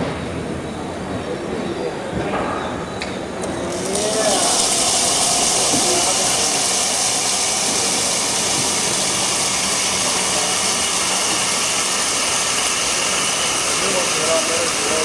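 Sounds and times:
loud steady hiss: 3.4s - 15.0s.

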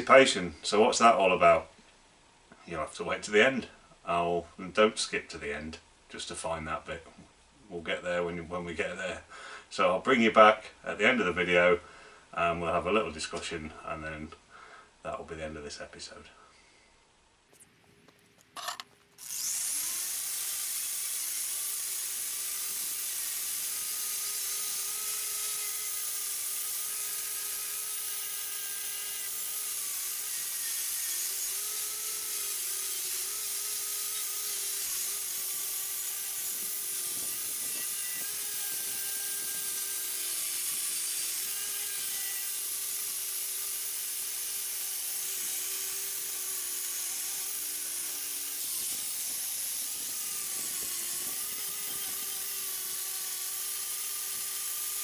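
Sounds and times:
angle grinder wire wheel whine: 18.6s - 55.0s.

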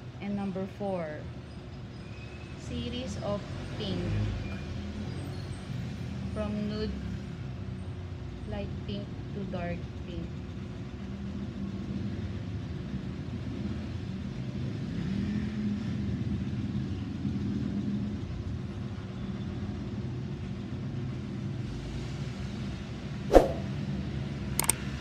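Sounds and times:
short sharp click: 23.3s - 23.7s, 24.6s - 24.8s.

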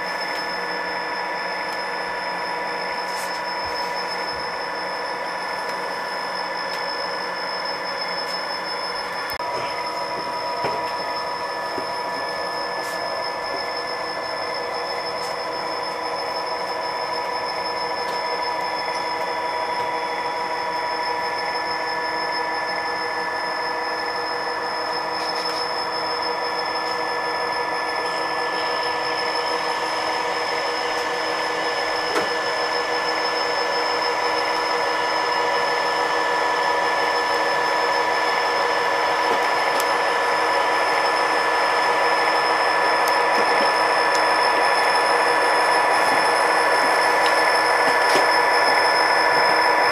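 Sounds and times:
model train wheels whirring: 0.0s - 49.9s.

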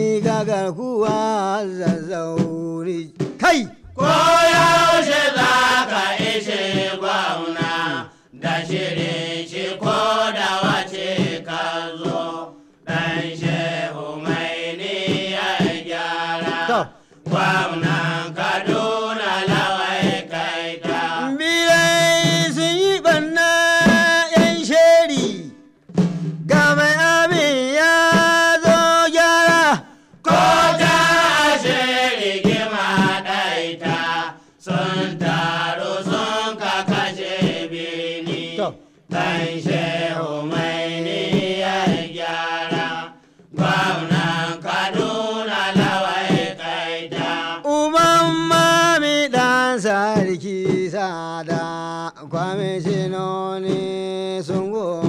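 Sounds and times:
percussion: 0.0s - 55.0s.

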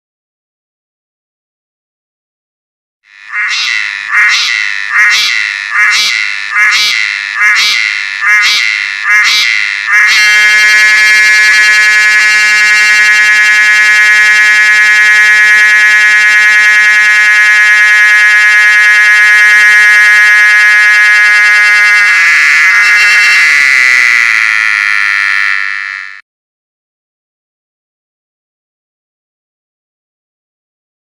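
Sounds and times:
cicada buzzing drone: 3.1s - 26.2s.

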